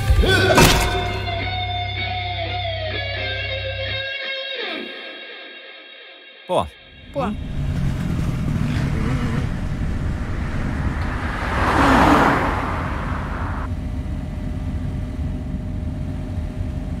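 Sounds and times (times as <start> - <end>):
steady low rumble: 7.3 - 11.7
noisy whoosh: 7.4 - 13.7.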